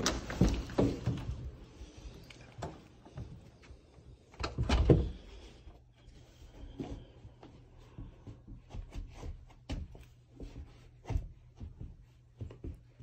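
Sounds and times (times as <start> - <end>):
door opening and closing: 4.4 - 5.2.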